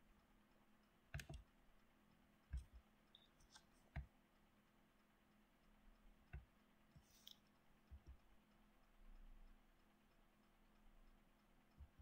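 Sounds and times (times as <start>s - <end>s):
faint low hum: 0.0s - 12.0s
computer mouse clicks: 1.1s - 1.5s.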